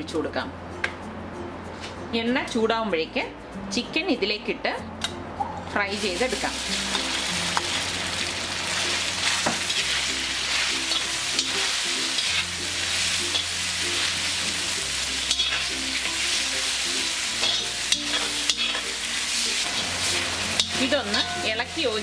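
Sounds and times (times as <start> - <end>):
chicken sizzling in hot oil: 5.9 - 22.0
metal spatula scraping a pan: 9.0 - 22.0.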